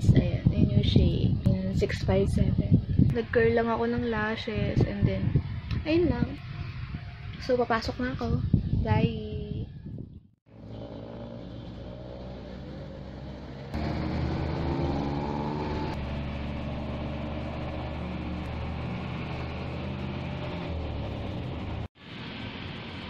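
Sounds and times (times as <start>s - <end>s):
road noise: 2.4s - 8.8s, 10.5s - 23.0s
diesel engine running: 10.5s - 21.9s.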